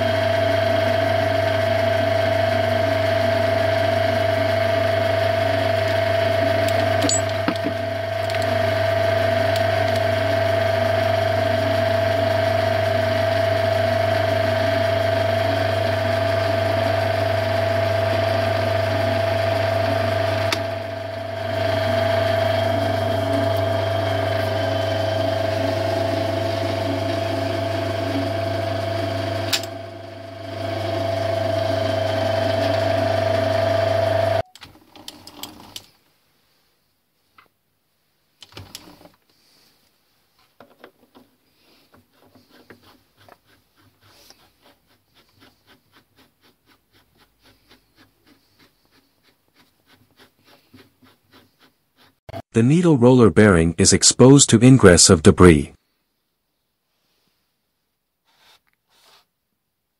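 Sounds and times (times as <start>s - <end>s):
metal lathe humming and whining: 0.0s - 34.4s
metal parts clicking: 7.0s - 7.4s.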